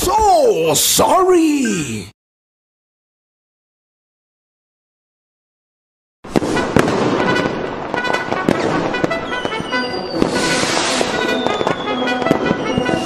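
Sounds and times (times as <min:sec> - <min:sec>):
sharp bangs and crackles: 0:06.3 - 0:13.0
music: 0:06.5 - 0:13.0
long falling whistle: 0:09.2 - 0:13.0.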